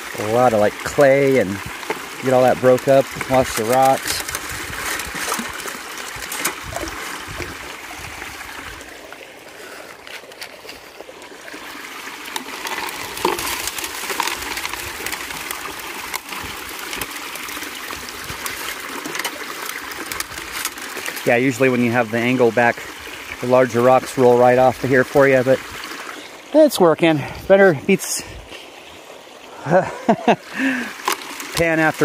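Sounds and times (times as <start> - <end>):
water rushing over metal sluice: 0.0 - 32.0
rocks clicking on metal bars: 1.8 - 7.0, 12.3 - 21.3.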